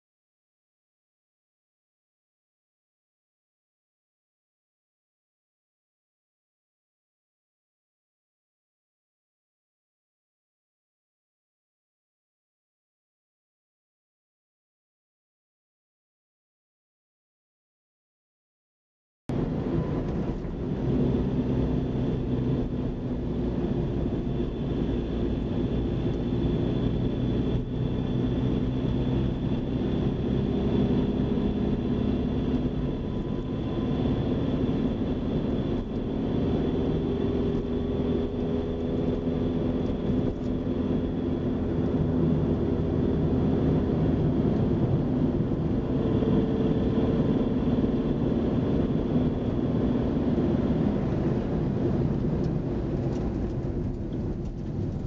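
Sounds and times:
car engine and tyre drone: 19.3 - 55.0.

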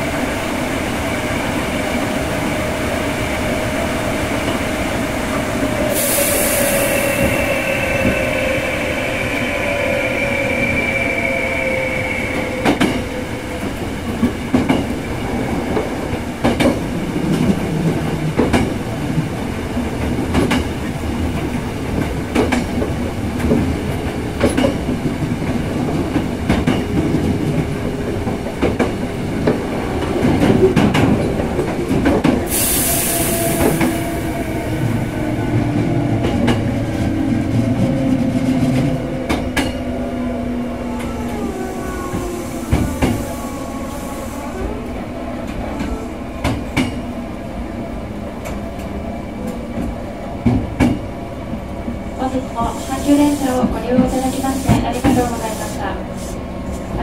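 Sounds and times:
electric train rumble: 0.0 - 57.0
air hiss: 5.6 - 9.4, 32.5 - 34.2, 52.6 - 56.5.

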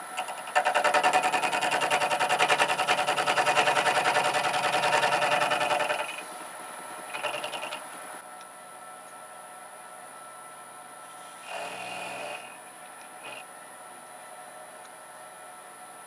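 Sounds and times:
milling machine cutting strokes: 0.0 - 6.5, 7.1 - 7.9, 11.1 - 12.6, 13.2 - 13.5.

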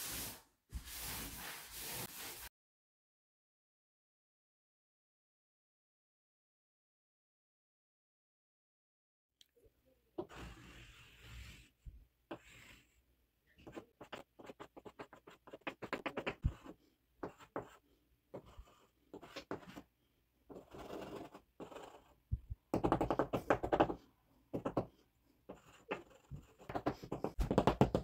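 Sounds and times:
chalk scratching on board: 0.0 - 2.5, 10.2 - 11.7, 12.3 - 12.9, 13.6 - 19.9, 20.5 - 22.2, 25.5 - 27.6
chalk tapping on board: 13.6 - 17.8, 22.7 - 24.9, 25.5 - 28.0.

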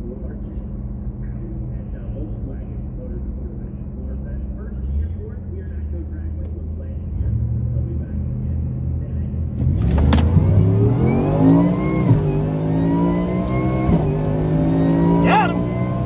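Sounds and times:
car engine accelerating hard: 0.0 - 16.0
supercharger whine: 9.8 - 16.0.

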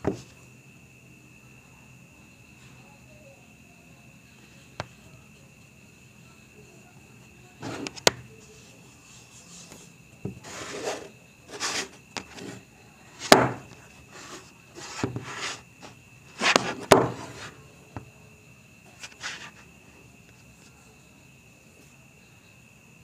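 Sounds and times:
wood rubbing on fabric: 7.6 - 12.6, 13.2 - 17.6, 18.9 - 19.7
sharp wooden knocks: 13.3 - 13.7, 16.5 - 17.2.

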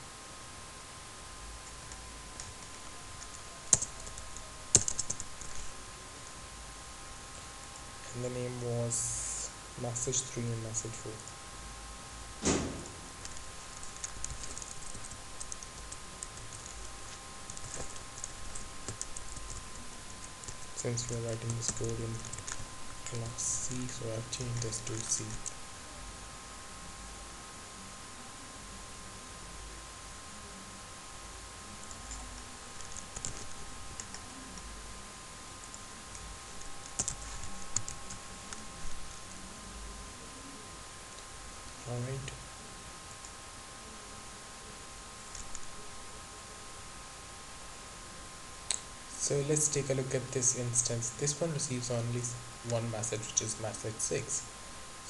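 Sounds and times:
computer keyboard typing: 1.6 - 5.7, 13.2 - 25.6, 31.8 - 34.7, 35.6 - 38.6, 45.3 - 45.7.

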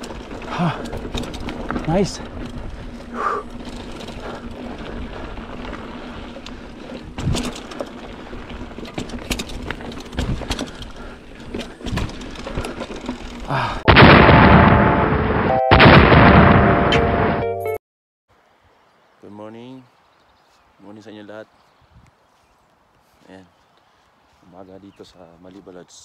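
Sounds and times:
loud boom: 13.9 - 17.5.

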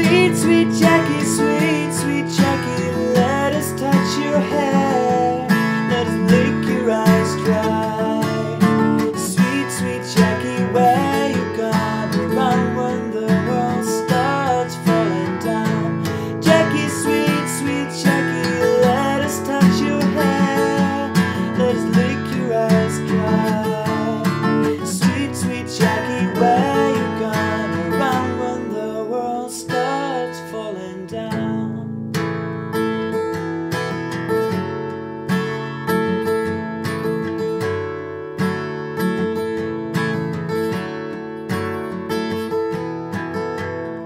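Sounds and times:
man singing: 0.0 - 32.0
acoustic guitar strumming: 0.0 - 44.0.

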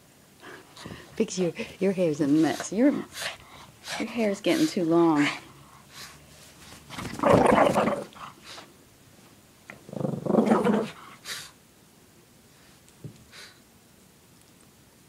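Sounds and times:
dog growling in play: 6.9 - 8.5, 9.7 - 11.5.

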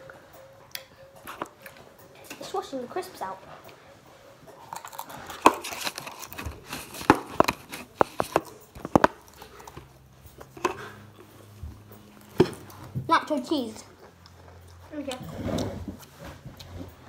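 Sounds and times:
objects knocking and clicking: 5.2 - 10.9.

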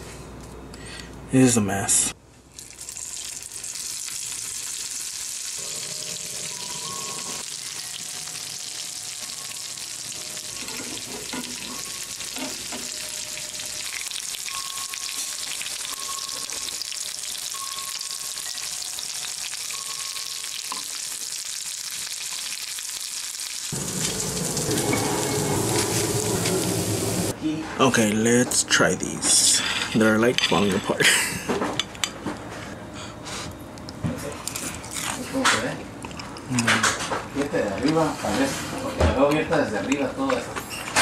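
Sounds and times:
patties sizzling in oil: 2.6 - 27.3
wind chimes ringing: 5.6 - 21.0, 23.8 - 26.5.

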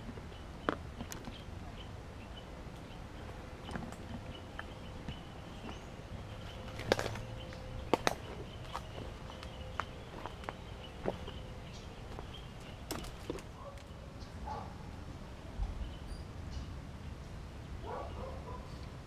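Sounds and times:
branches brushing: 3.3 - 13.9
footsteps crunching dry leaves: 5.5 - 13.5
twigs snapping: 6.7 - 7.3, 7.9 - 11.3, 12.1 - 13.9.

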